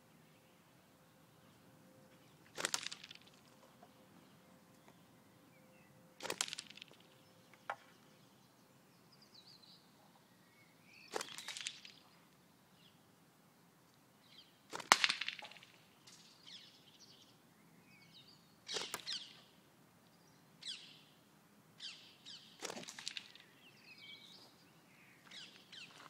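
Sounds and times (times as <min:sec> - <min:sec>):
lead shot smacking cans: 0:02.5 - 0:03.4, 0:06.2 - 0:07.0, 0:11.1 - 0:12.0, 0:14.7 - 0:16.3
faint bird chirps: 0:21.8 - 0:26.0.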